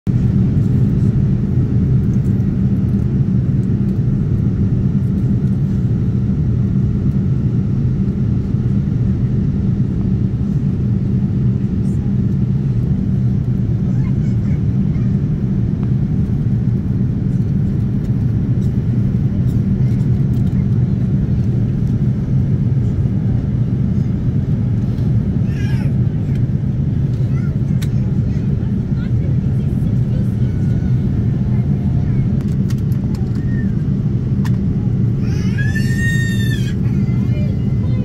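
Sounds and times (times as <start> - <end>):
airliner cabin engine rumble: 0.1 - 38.0.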